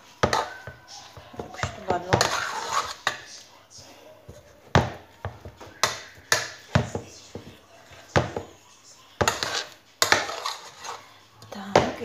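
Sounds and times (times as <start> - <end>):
spoon knocking against saucepan: 4.3 - 8.6, 9.2 - 10.4.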